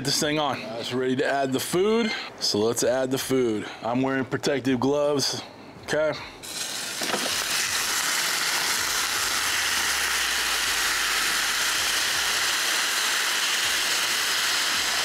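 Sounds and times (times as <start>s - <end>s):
chicken sizzling on a grill: 6.4s - 15.0s.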